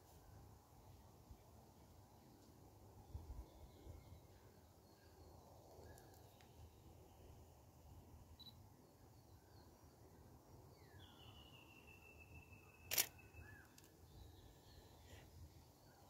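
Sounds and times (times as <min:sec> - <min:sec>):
camera shutter click: 0:12.9 - 0:13.9.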